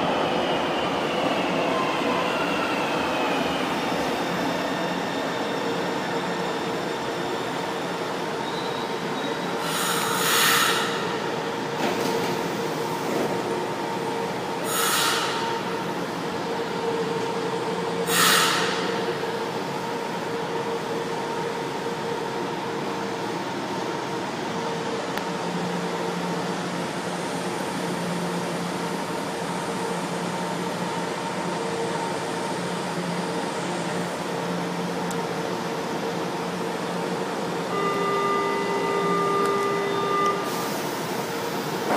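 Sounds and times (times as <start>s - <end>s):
electric train humming: 0.0s - 41.9s
underground station noise: 0.0s - 41.9s
short loud hisses: 14.7s - 15.4s, 18.1s - 18.7s.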